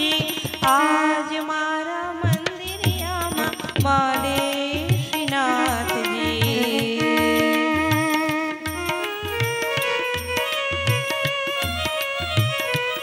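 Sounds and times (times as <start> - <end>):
woman singing: 0.0 - 9.0.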